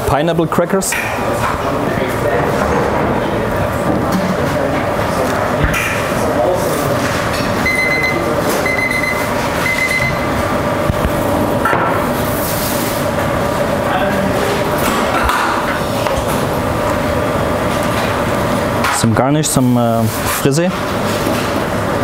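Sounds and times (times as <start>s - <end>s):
kitchen hum: 0.0s - 22.0s
short high beeps: 7.6s - 10.2s.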